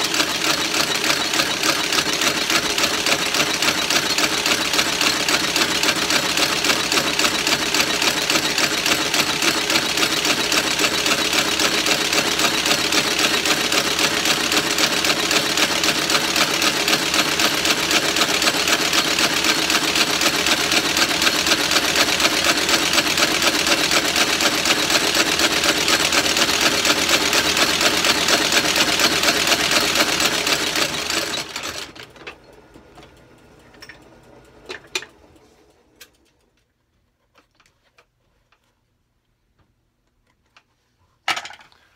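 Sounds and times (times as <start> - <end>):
stitching machine sewing shoe sole: 0.0 - 33.1.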